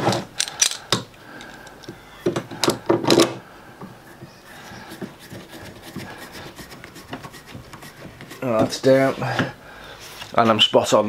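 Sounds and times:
metal and wood clicks and knocks: 0.0 - 3.4.

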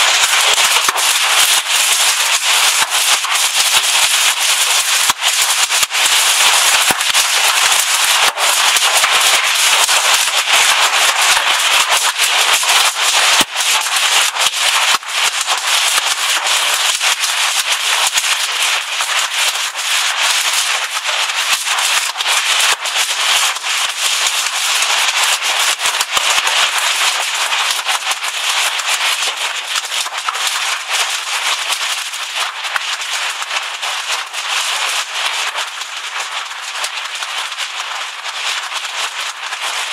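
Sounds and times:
hail rattling down: 0.0 - 18.6.

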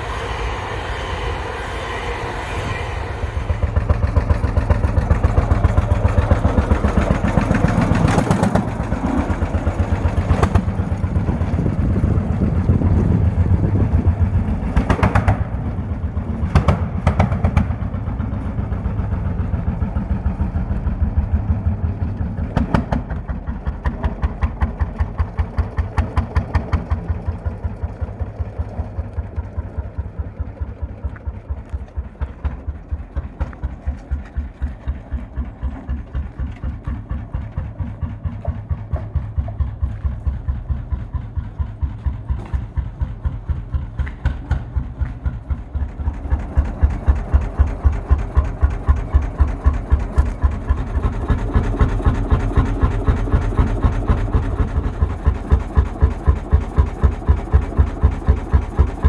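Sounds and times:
tractor engine exhaust beating: 0.0 - 59.0.

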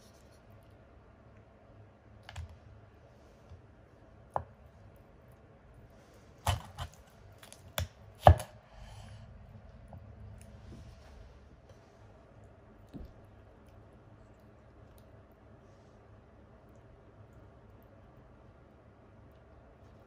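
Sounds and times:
knife cracking through fish bone: 6.4 - 8.5.

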